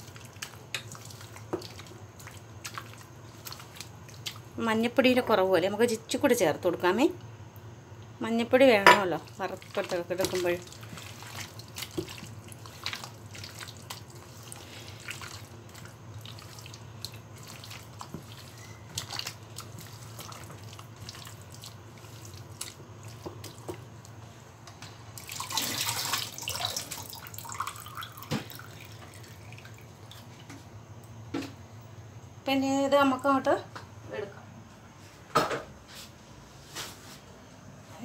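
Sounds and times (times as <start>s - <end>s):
hand kneading wet chicken: 0.0s - 4.6s, 9.3s - 24.0s.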